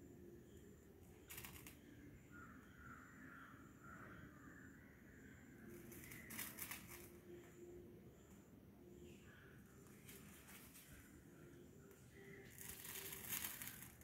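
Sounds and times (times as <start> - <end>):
soft scratchy crackles: 12.1 - 14.0.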